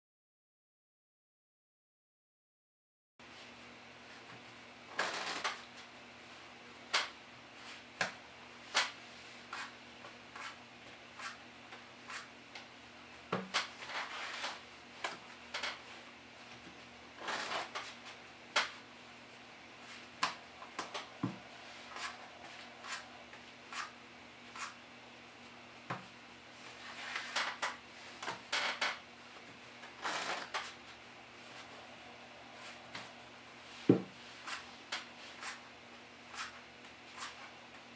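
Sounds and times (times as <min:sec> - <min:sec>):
playing cards riffle shuffling: 0:17.2 - 0:18.0, 0:19.8 - 0:24.8, 0:29.8 - 0:30.8, 0:33.7 - 0:35.6, 0:36.3 - 0:37.5.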